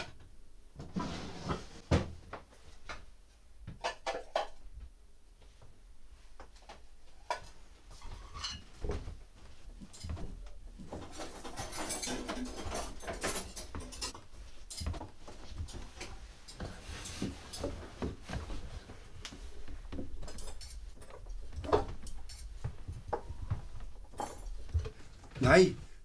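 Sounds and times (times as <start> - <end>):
drawer being worked: 0.8 - 2.1, 10.4 - 14.2
dishes and cutlery clinking: 3.8 - 4.6, 7.2 - 9.1, 9.8 - 18.8, 19.7 - 25.0.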